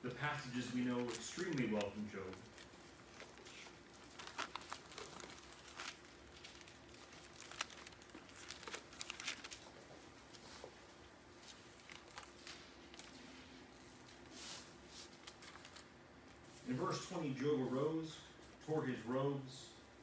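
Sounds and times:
thin pages rustling: 0:00.8 - 0:10.7, 0:11.4 - 0:15.9.

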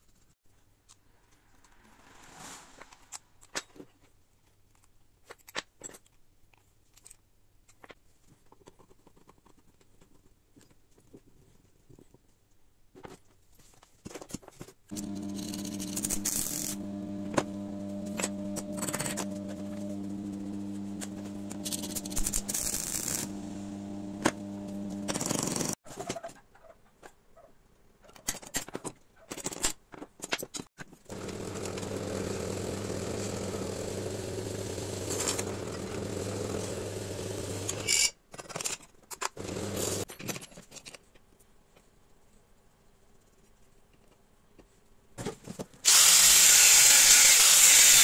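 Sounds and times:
steady motor hum: 0:14.9 - 0:25.8, 0:31.1 - 0:37.9, 0:39.4 - 0:40.0
drill press drilling metal: 0:15.0 - 0:25.8, 0:31.1 - 0:38.0, 0:39.4 - 0:40.0, 0:45.9 - 0:48.0.

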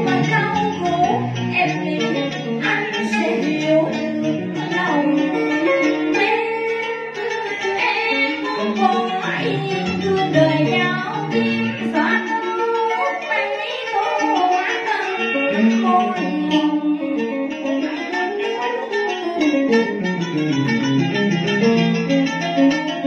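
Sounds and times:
woman singing into a microphone: 0:00.0 - 0:19.9
plucked string instruments: 0:00.0 - 0:23.0.

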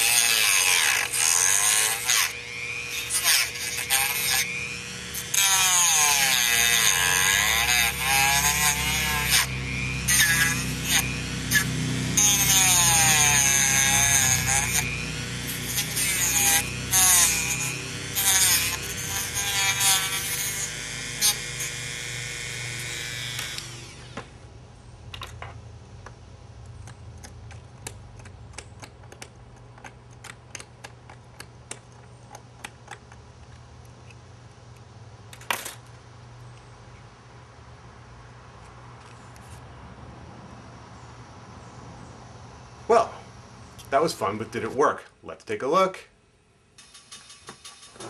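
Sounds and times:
rotary tool grinding plastic: 0:00.0 - 0:24.3, 0:26.6 - 0:34.3.

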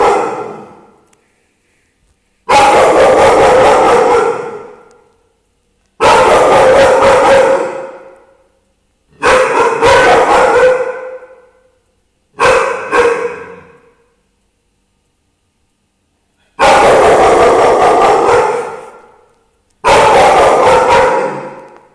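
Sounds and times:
dog barking: 0:00.0 - 0:01.0, 0:02.5 - 0:04.9, 0:06.0 - 0:08.2, 0:09.2 - 0:11.6, 0:12.4 - 0:13.9, 0:16.4 - 0:19.2, 0:19.8 - 0:21.8.

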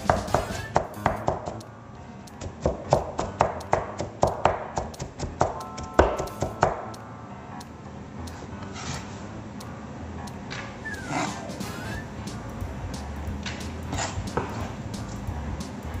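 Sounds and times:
knife chopping on plastic board: 0:02.4 - 0:06.8.

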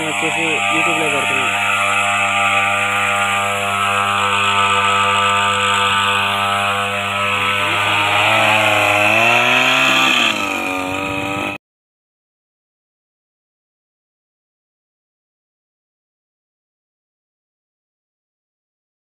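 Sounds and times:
two-stroke sprayer engine running: 0:00.0 - 0:11.6.

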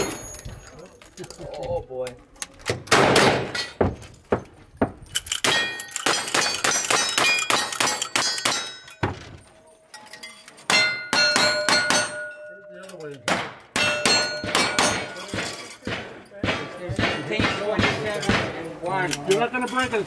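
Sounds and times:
rifle shots: 0:02.9 - 0:03.6
steel plates clanging: 0:05.0 - 0:20.0.

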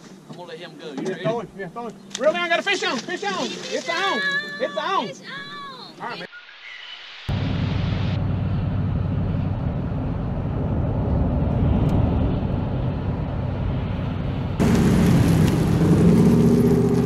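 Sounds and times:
pickup truck engine: 0:07.4 - 0:17.0
car road rumble from inside: 0:14.6 - 0:17.0.

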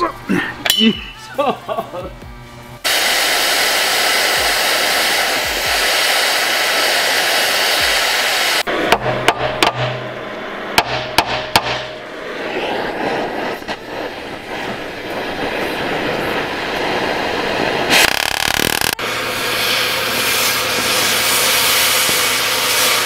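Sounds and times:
cutting torch hissing: 0:02.8 - 0:09.0, 0:10.0 - 0:23.0
sharp knocks: 0:08.9 - 0:10.0, 0:10.8 - 0:12.0.

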